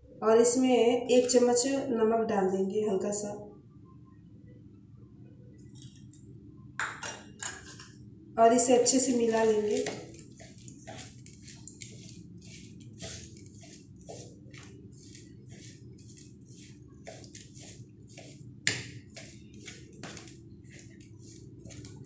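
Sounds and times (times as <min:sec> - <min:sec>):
metal spoon scraping in bowl: 0:09.1 - 0:22.0.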